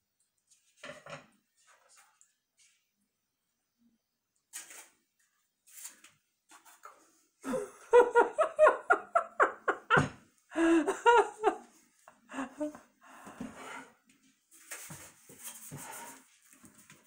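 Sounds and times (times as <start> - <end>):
person laughing: 7.4 - 12.9
faint breaths or rustles: 11.7 - 17.0.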